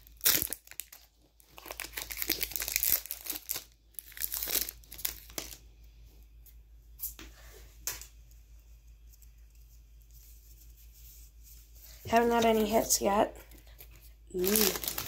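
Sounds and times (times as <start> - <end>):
foil rustling: 0.0 - 5.6, 10.1 - 15.0
foil wrapper crinkling and tearing: 0.0 - 5.6, 13.6 - 15.0.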